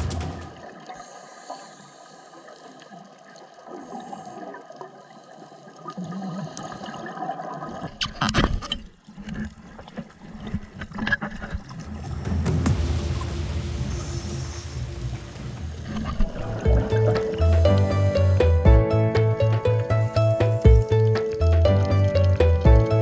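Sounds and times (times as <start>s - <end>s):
underwater hiss and gurgle: 0.6s - 7.9s, 12.7s - 18.5s
regulator bubbles rushing: 11.5s - 18.8s.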